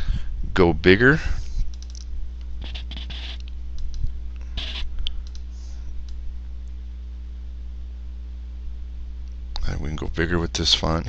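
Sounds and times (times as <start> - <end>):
low electrical hum: 0.0 - 11.0
computer mouse clicks: 1.7 - 2.1, 4.6 - 5.5
scratchy rustles: 2.6 - 3.4, 4.5 - 4.9.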